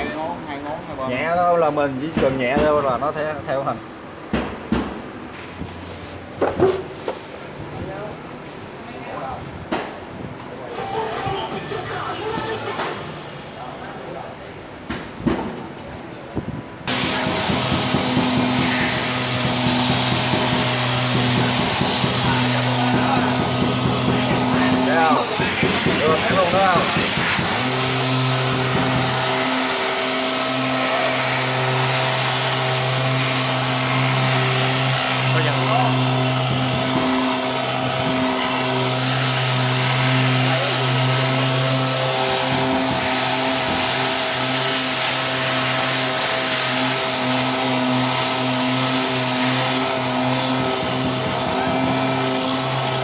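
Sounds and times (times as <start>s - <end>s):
dust extraction vacuum running: 16.9s - 53.0s
sanding block on body filler: 16.9s - 53.0s.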